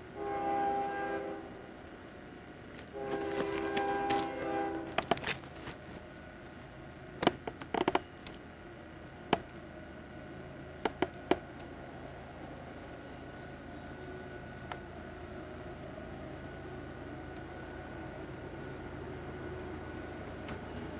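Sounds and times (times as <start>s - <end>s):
locomotive horn: 0.0s - 1.7s, 2.8s - 5.8s
steady low hum: 0.0s - 20.9s.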